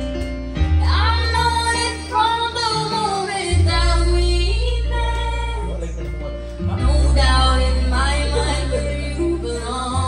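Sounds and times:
sustained bass notes: 0.0s - 10.0s
woman singing with vibrato: 7.0s - 10.0s.

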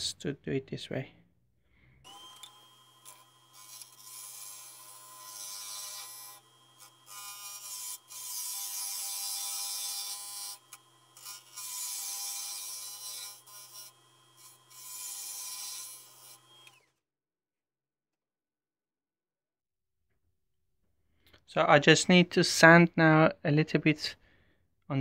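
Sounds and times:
scraper cutting spinning wood: 2.1s - 16.8s.

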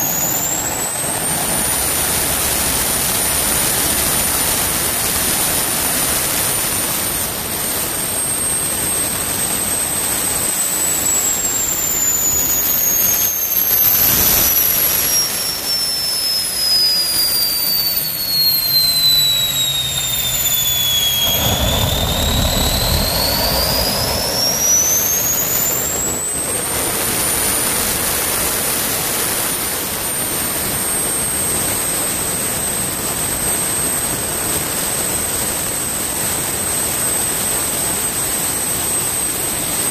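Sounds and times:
jet turbine whine and exhaust: 0.0s - 39.9s
low rumble: 18.6s - 27.2s.

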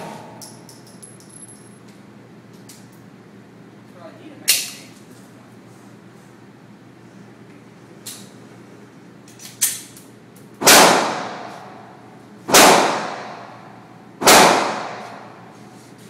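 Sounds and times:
handgun shots echoing: 12.5s - 13.5s, 14.2s - 15.2s.

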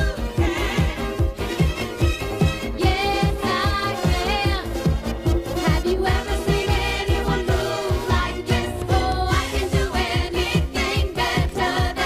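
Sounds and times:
upbeat pop music: 0.0s - 12.0s.

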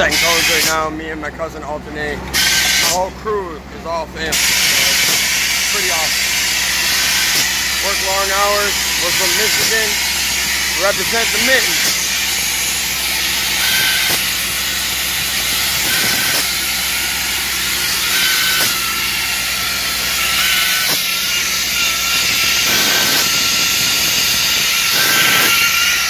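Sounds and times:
moving truck: 0.0s - 26.0s
pressurised paint spray hissing: 8.7s - 25.6s.

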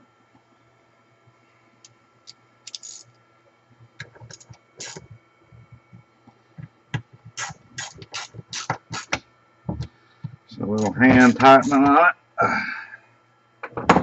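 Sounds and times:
faint steady hum: 0.0s - 14.0s
screwdriver clicks and scrapes: 4.3s - 5.0s.

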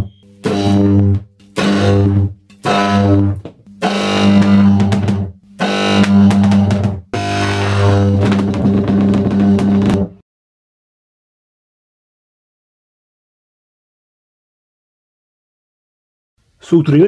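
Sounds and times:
electric arcs buzzing: 0.0s - 10.1s.

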